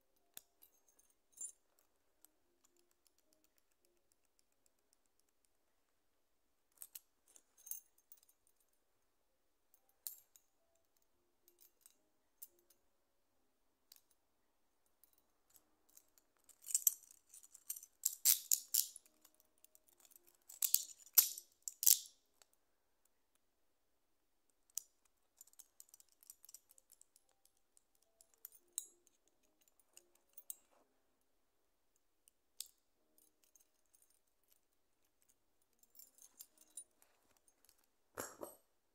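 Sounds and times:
metal handcuffs clicking and rattling: 0:00.2 - 0:05.6, 0:06.7 - 0:08.8, 0:14.9 - 0:22.6, 0:24.5 - 0:30.8, 0:32.2 - 0:38.6.

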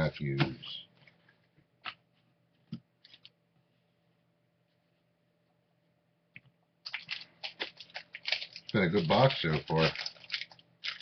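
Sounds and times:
low room hum: 0:00.0 - 0:11.0
trading cards rustling: 0:06.9 - 0:11.0.

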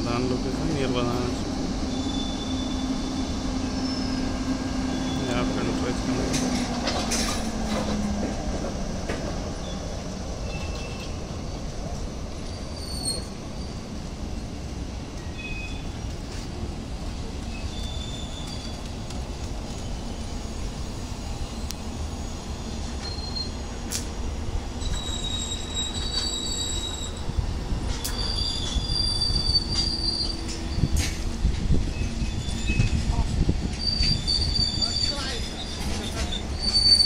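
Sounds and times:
train wheels rumbling on rail: 0:00.0 - 0:37.0
high-pitched wheel squeals: 0:01.9 - 0:05.5, 0:12.4 - 0:13.8, 0:17.5 - 0:18.9, 0:23.0 - 0:23.6, 0:24.8 - 0:31.2, 0:31.9 - 0:37.0.

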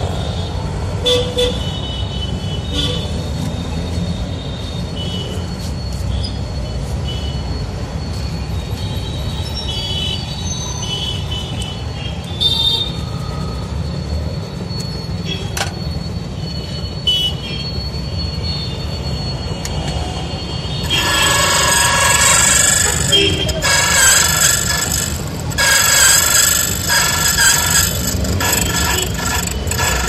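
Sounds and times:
high metallic screech of cutter: 0:20.6 - 0:30.0.

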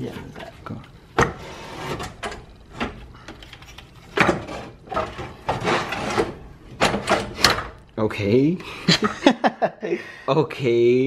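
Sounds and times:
rubber hose rubbing and scraping: 0:00.0 - 0:07.6.

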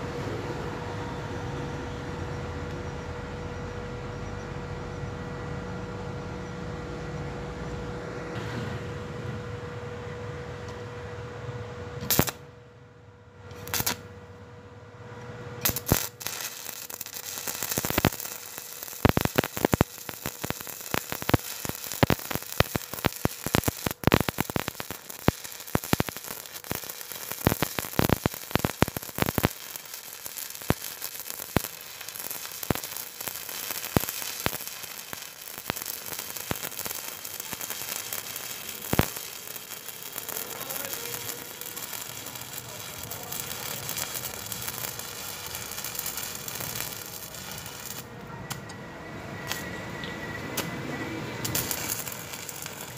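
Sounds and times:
welding arc crackling sizzle: 0:12.0 - 0:12.4, 0:13.5 - 0:14.1, 0:15.6 - 0:48.7, 0:49.4 - 0:50.7, 0:51.4 - 0:52.9.

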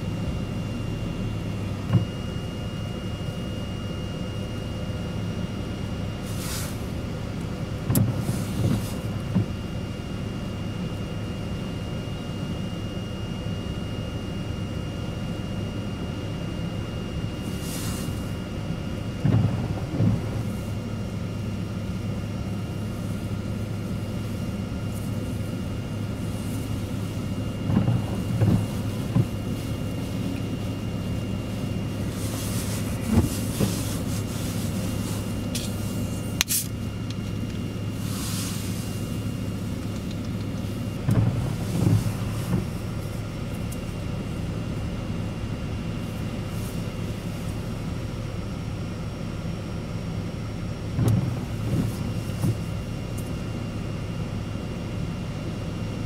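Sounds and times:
vehicle engine hum: 0:00.0 - 0:56.0
rain gusting against windshield: 0:19.2 - 0:22.0, 0:22.6 - 0:47.9, 0:50.9 - 0:52.8.

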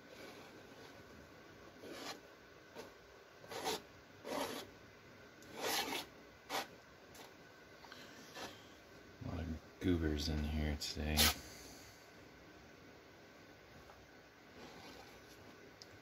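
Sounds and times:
palette knife scraping canvas: 0:01.8 - 0:02.2, 0:03.5 - 0:04.7, 0:05.5 - 0:06.7.

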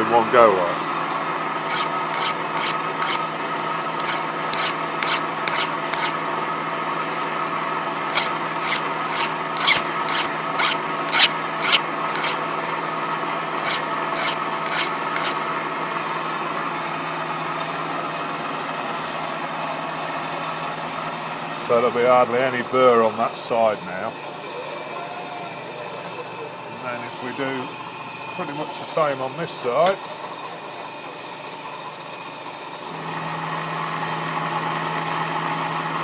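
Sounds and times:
milling machine cutting steel: 0:01.6 - 0:03.4, 0:04.0 - 0:06.2, 0:08.0 - 0:12.7, 0:13.4 - 0:15.4.

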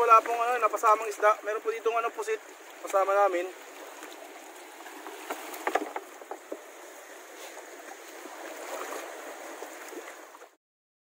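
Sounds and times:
water rushing around boat: 0:00.0 - 0:10.6
sharp taps and knocks: 0:05.0 - 0:06.7.

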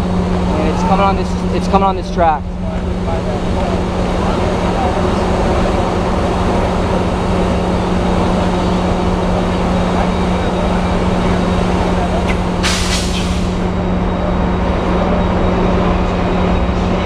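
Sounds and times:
diesel locomotive idling: 0:00.0 - 0:17.0
air brakes hissing: 0:12.2 - 0:13.7.

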